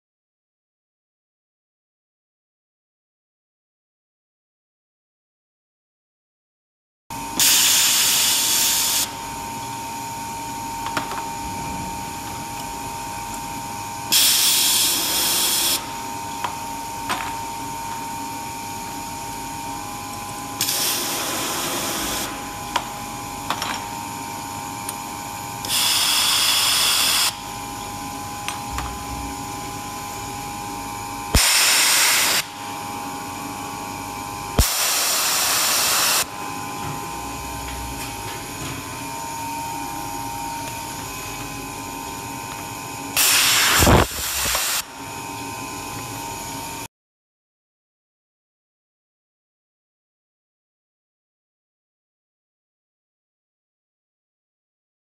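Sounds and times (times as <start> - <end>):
machine hum with faint whine: 7.1 - 46.9.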